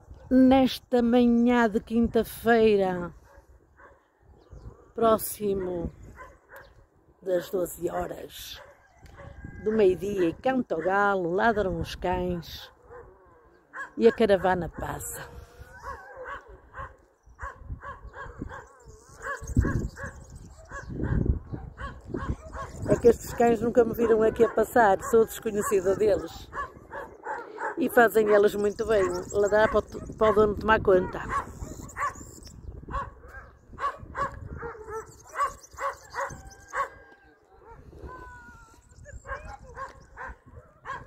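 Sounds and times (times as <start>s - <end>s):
dogs barking: 3.2s - 4.1s, 5.5s - 6.8s, 8.5s - 9.4s, 10.1s - 11.1s, 12.7s - 38.1s, 39.1s - 41.0s.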